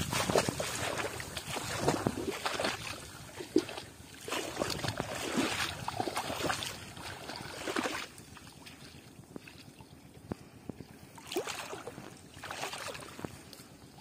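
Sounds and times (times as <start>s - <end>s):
wading through shallow water: 0.0s - 14.0s.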